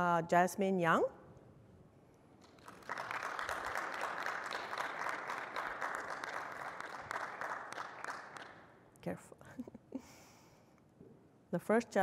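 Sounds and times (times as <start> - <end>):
audience applauding: 2.4 - 8.7.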